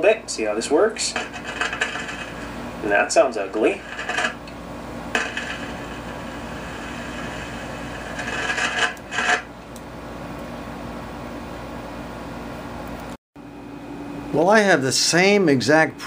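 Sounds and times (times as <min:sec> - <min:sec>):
speaker noise with low tone: 0:05.1 - 0:09.4.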